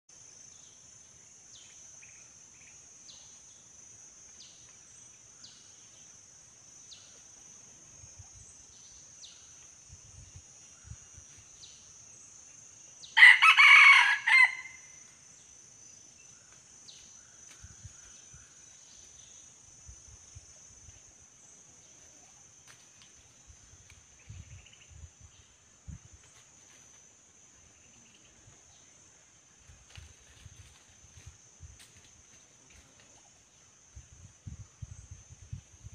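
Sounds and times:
insect drone: 0.1 - 35.9
rooster crowing: 13.2 - 15.0.

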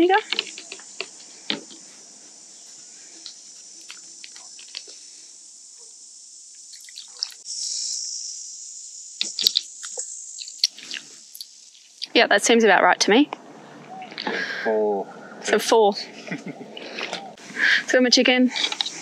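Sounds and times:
liquid pouring: 6.7 - 7.4.

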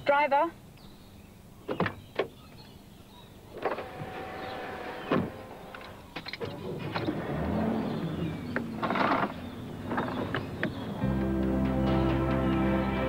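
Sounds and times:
engine and road noise: 3.4 - 13.0
car door shutting: 4.9 - 7.5.

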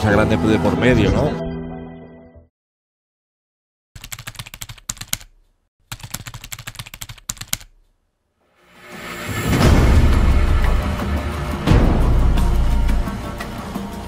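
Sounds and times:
keystroke clicks: 4.0 - 7.9
rising swell of sound: 8.6 - 14.0.

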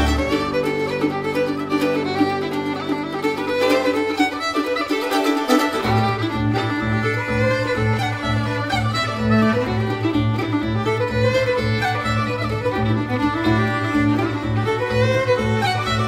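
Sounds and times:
pulsing bass beat: 0.0 - 0.9
held string notes: 0.0 - 16.0.

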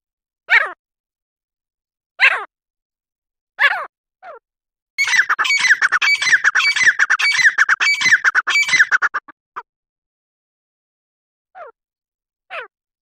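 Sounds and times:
bird calling in rapid notes: 5.0 - 9.7.

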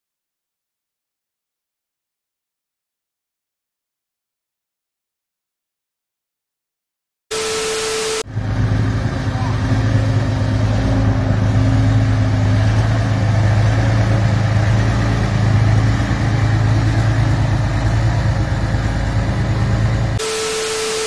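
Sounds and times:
static hiss: 7.3 - 8.2, 20.2 - 21.0
steady beep: 7.3 - 8.3, 20.2 - 21.0
motorcycle engine droning: 7.3 - 21.0.

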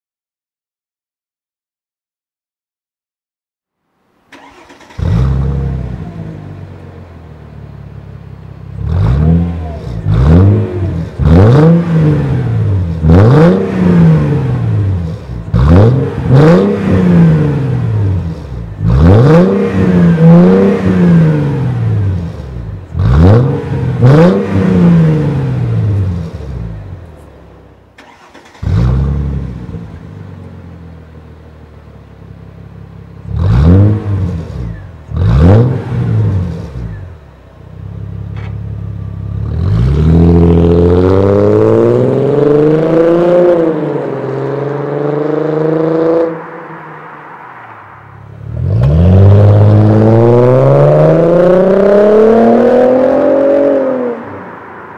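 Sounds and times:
car accelerating away: 4.3 - 8.0, 8.7 - 27.0, 28.0 - 30.8, 33.1 - 37.2, 37.8 - 54.9
car engine revving: 4.3 - 27.2, 28.0 - 54.9
car engine idling: 25.6 - 33.4, 36.1 - 39.6.

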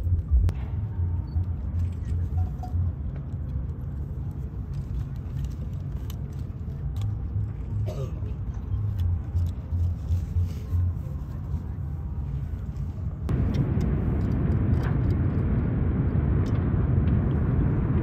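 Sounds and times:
fire rumbling: 12.4 - 18.0
fire crackles: 13.2 - 18.0.

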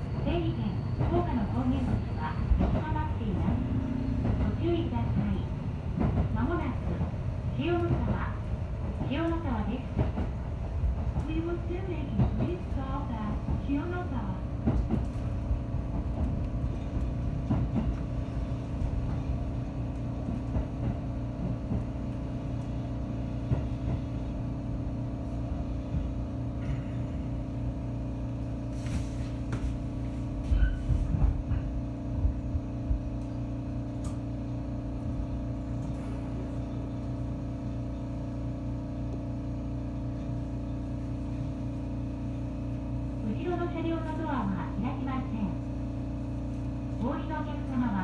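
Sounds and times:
electric train hum: 0.0 - 48.0
train rumble: 0.0 - 48.0.

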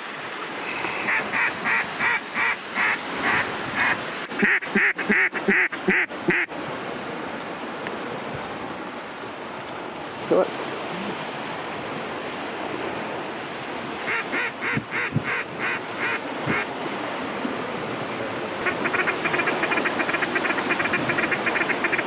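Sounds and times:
water lapping: 0.0 - 22.0
duck quacking: 0.7 - 6.5, 14.1 - 16.7, 18.6 - 22.0.

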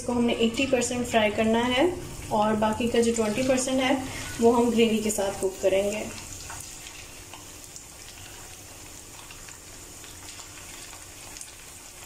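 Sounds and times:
chicken frying in hot oil: 0.1 - 12.0.

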